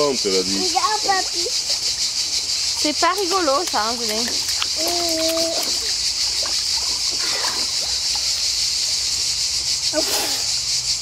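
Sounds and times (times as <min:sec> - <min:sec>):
insects chorus: 0:00.0 - 0:11.0
water sloshing in plastic tub: 0:00.8 - 0:09.1.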